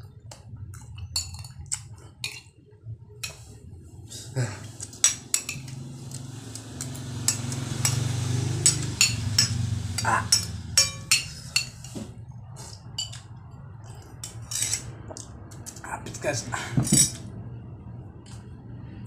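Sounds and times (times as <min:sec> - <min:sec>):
cutlery clinking on glass bowl: 0:01.0 - 0:02.5, 0:04.9 - 0:05.9, 0:06.8 - 0:12.1, 0:12.9 - 0:13.3.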